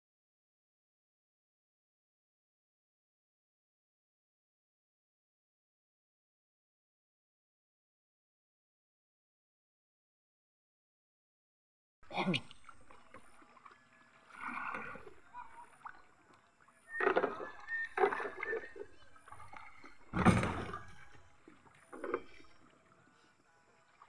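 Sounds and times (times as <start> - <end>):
water splashing around boat: 12.4 - 24.0.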